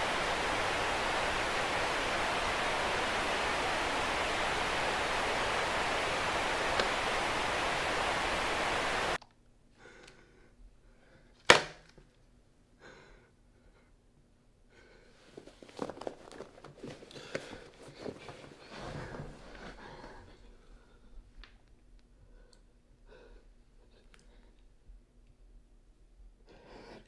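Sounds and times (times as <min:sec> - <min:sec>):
television static hissing: 0:00.0 - 0:09.2
soft rustling: 0:15.1 - 0:21.6.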